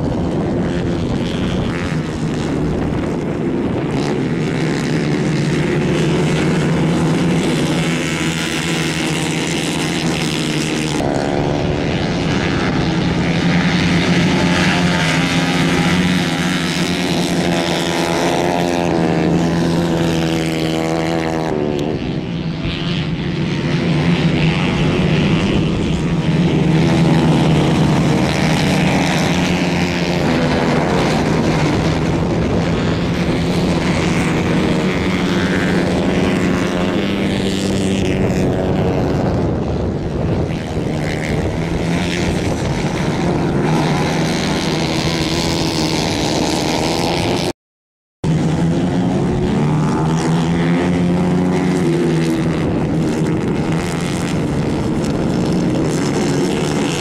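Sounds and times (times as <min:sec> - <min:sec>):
racing kart engines: 0:00.0 - 0:47.5, 0:48.2 - 0:57.0.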